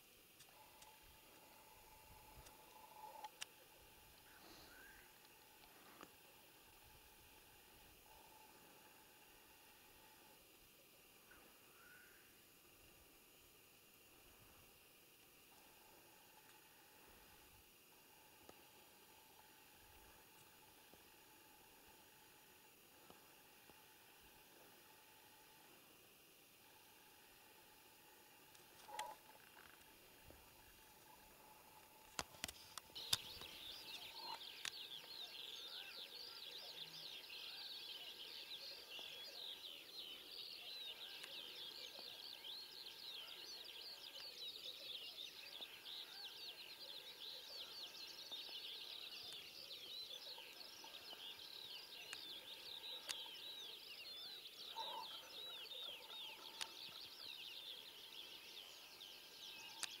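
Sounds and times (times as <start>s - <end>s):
songbirds chirping and trilling: 0.4s - 12.7s, 13.6s - 60.0s
sharp clicks: 31.9s - 35.1s.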